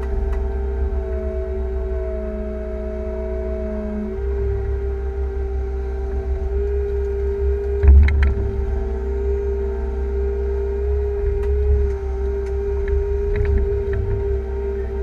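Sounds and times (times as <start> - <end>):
excavator engine rumble and whine: 0.0 - 15.0.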